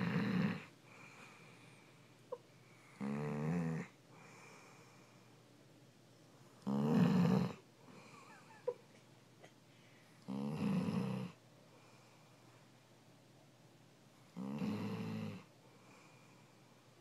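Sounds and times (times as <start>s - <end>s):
dog snoring: 0.0s - 1.8s, 2.8s - 5.0s, 6.6s - 8.2s, 10.2s - 11.4s, 14.3s - 16.2s.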